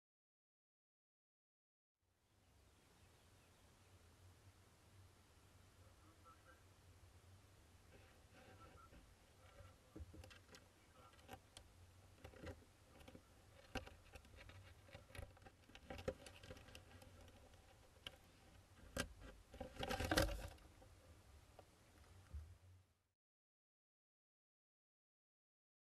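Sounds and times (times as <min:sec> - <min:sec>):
chicks scratching on wood: 0:07.9 - 0:20.9.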